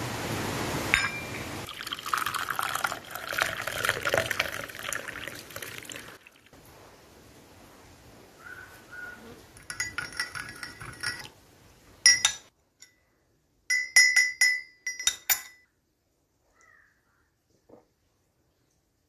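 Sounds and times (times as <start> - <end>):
teaspoon clinking in teacup: 9.6 - 11.3, 12.1 - 13.0, 13.7 - 15.7.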